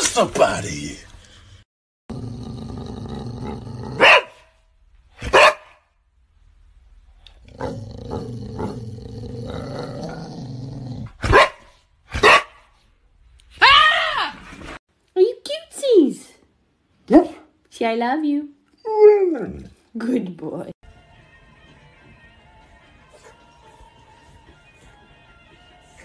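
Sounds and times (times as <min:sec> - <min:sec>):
dog growling: 0:02.1 - 0:04.2, 0:07.2 - 0:11.2
dog barking: 0:04.0 - 0:04.5, 0:05.2 - 0:05.8, 0:11.2 - 0:12.7, 0:17.1 - 0:17.5.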